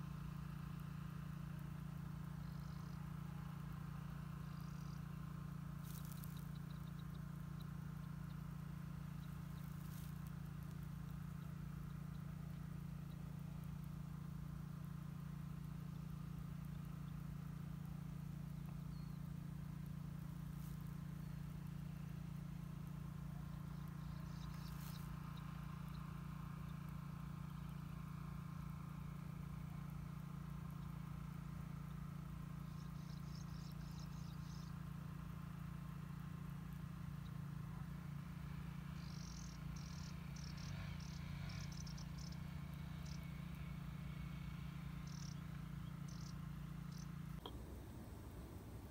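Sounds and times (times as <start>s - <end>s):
steady low hum: 0.0s - 48.9s
pulsed insect chirping: 39.0s - 42.4s, 45.0s - 45.4s, 46.1s - 47.2s.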